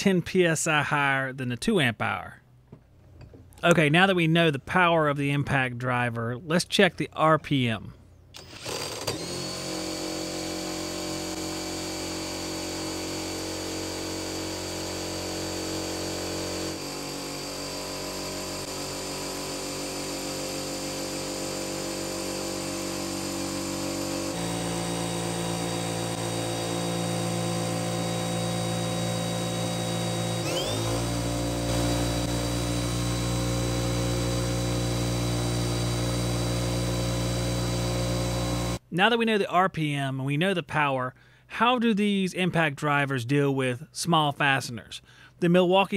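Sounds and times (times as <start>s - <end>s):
impact driver motor whine: 8.4s - 38.8s.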